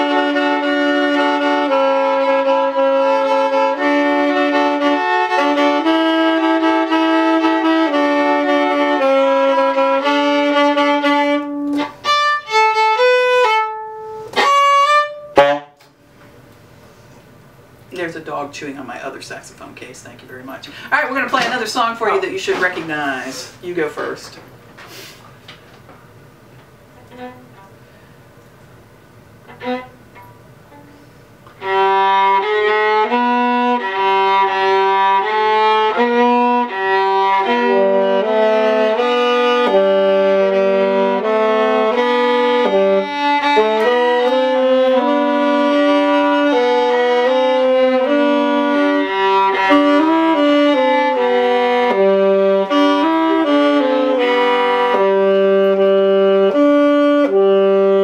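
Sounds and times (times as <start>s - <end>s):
viola bowing a melody: 0.0s - 16.0s, 26.8s - 28.2s, 29.2s - 58.0s.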